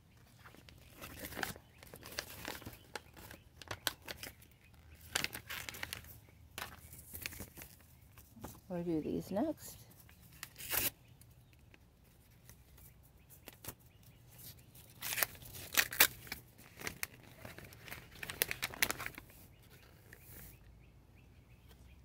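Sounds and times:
paper packet crinkling: 0.4s - 8.3s, 14.9s - 20.4s.

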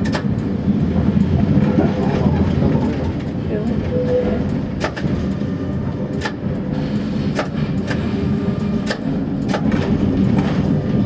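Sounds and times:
tram rumbling: 0.0s - 11.0s.

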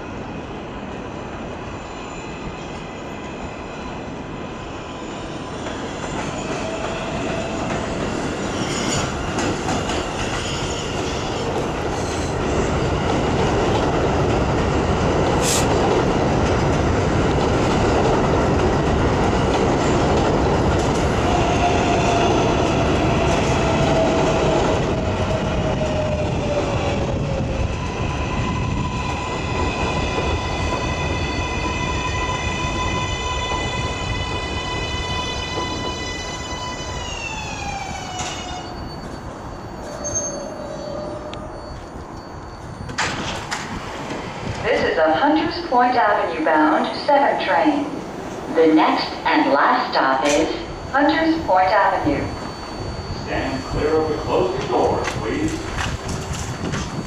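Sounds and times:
train wheel squeal: 1.6s - 12.8s, 23.2s - 44.1s, 50.2s - 57.0s
train wheels rumbling on rails: 5.3s - 46.2s, 51.4s - 57.0s.

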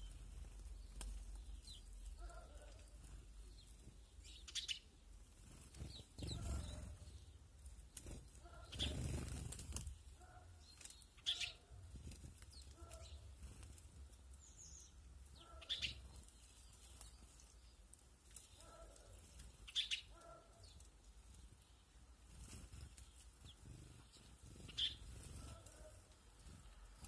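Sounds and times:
sparrows chirping: 0.0s - 27.0s.

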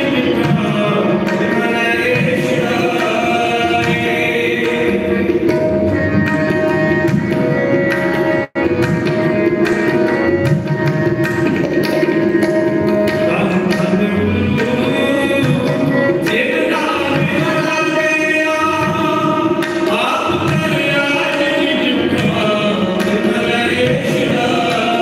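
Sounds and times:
man singing: 0.0s - 5.6s, 13.2s - 25.0s
harmonium chords: 0.0s - 25.0s
tabla: 0.0s - 25.0s.

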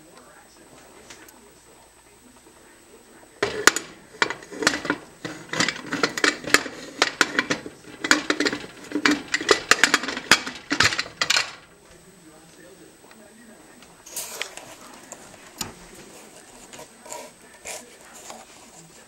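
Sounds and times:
pot lid clanking and scraping: 3.4s - 11.7s.

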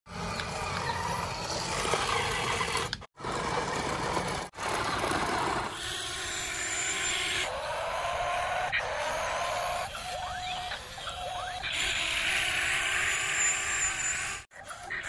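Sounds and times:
mechanical vehicle noise: 0.1s - 6.3s.

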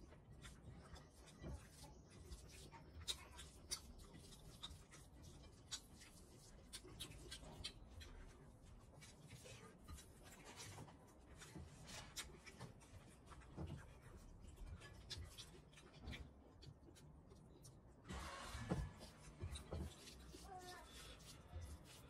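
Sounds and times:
chewing and mouth smacks: 0.0s - 18.0s
fingers squishing rice: 0.0s - 22.0s.

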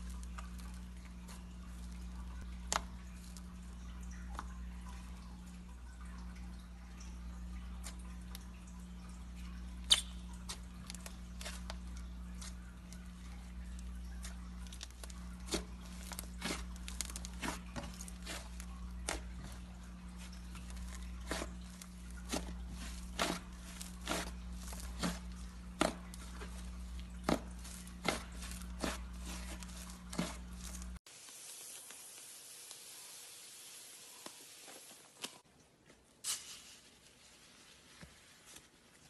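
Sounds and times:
wet clicks and bubble pops: 9.8s - 11.2s.

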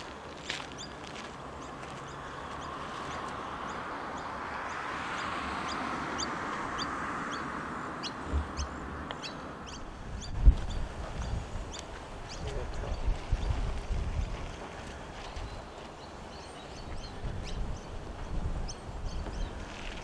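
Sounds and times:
bird chirping: 0.6s - 13.6s, 15.2s - 20.0s
wind rushing: 9.8s - 14.8s.

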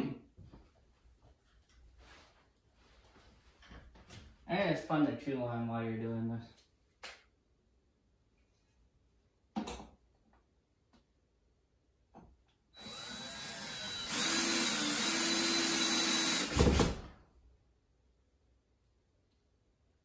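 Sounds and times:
drill stopping clunk: 12.8s - 17.0s
power drill driving a screw: 12.8s - 17.0s.

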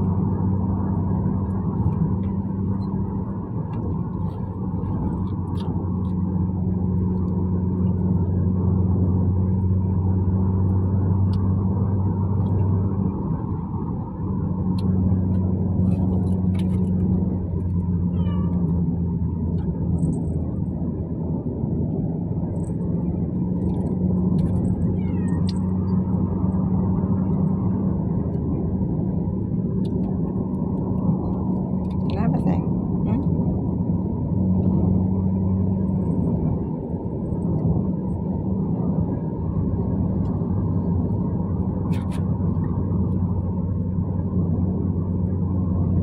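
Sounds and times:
car cabin engine and road drone: 0.0s - 46.0s
kitten meowing: 18.1s - 18.8s, 24.8s - 25.8s.

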